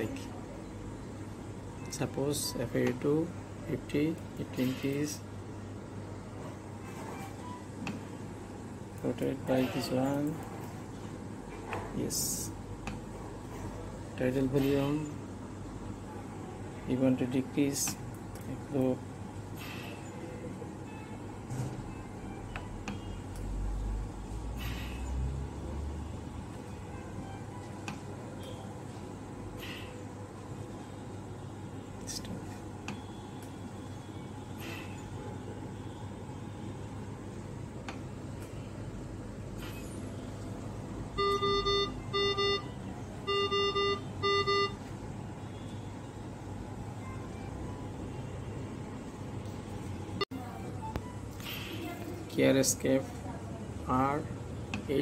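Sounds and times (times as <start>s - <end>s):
steady hum: 0.0s - 55.0s
ventilator alarm beeps: 7.1s - 7.9s, 32.8s - 36.6s, 41.0s - 46.2s.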